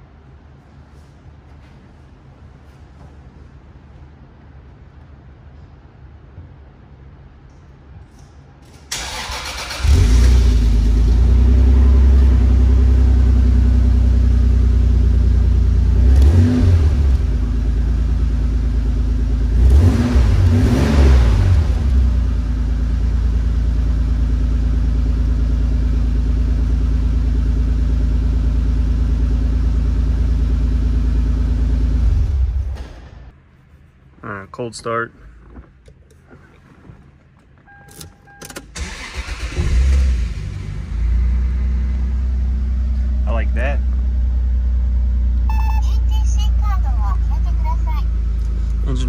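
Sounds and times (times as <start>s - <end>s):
car engine starting and idling: 8.1s - 33.4s, 35.4s - 49.0s
car engine revving: 9.0s - 14.3s, 15.6s - 17.5s, 19.4s - 22.3s.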